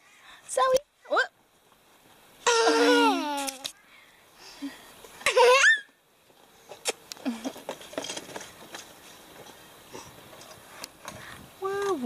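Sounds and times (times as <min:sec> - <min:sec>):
toddler laughing squeal: 0:02.4 - 0:03.6, 0:05.3 - 0:05.9.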